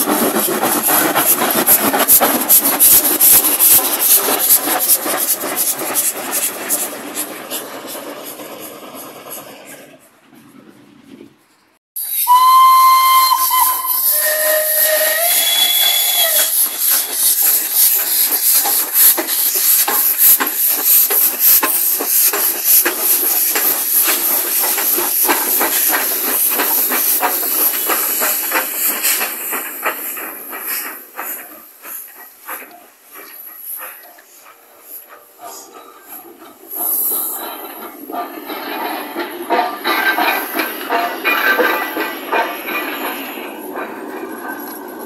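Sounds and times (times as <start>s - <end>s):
steam hiss: 0.0s - 10.1s, 12.0s - 45.0s
locomotive chuffing: 0.0s - 10.8s, 12.1s - 45.0s
steam locomotive whistle: 12.0s - 17.3s
wheel clatter: 15.8s - 45.0s.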